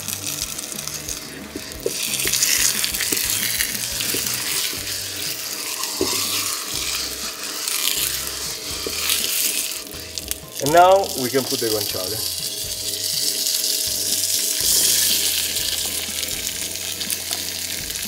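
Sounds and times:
pork rind sizzling in a pan: 0.0 - 18.0.

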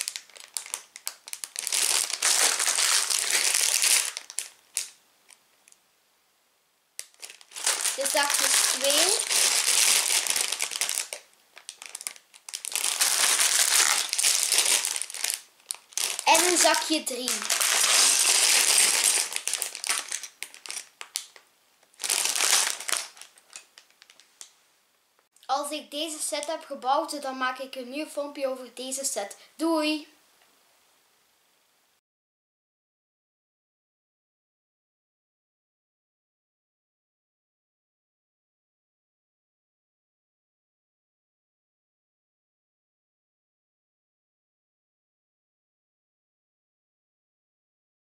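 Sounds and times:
plastic bags crinkling: 0.0 - 5.0, 7.0 - 24.5.

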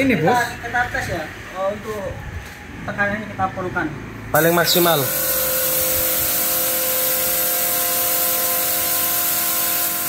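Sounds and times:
motor humming: 4.4 - 10.0
pressure washer water jet hissing: 4.4 - 10.0.

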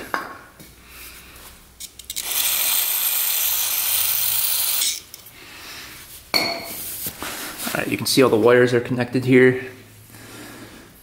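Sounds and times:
spray can hissing: 2.2 - 5.0.

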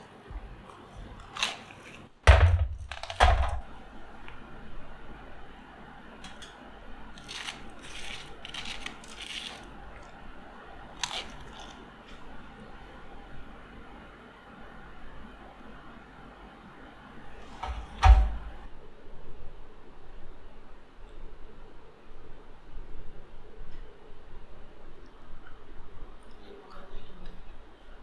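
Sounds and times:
breaded crust crunching: 7.1 - 10.2, 10.9 - 12.3.

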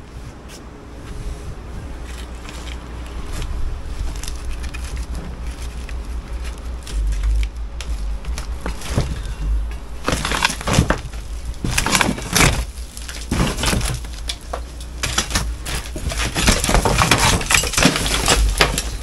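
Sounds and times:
rubble crashing down: 4.0 - 19.0
masonry knocking and cracking: 4.3 - 19.0.

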